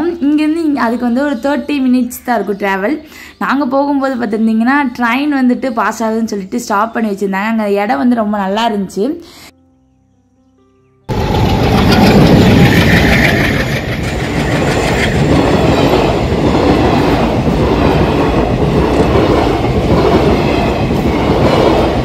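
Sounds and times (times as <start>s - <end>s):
train wheels clattering on rails: 11.1s - 22.0s.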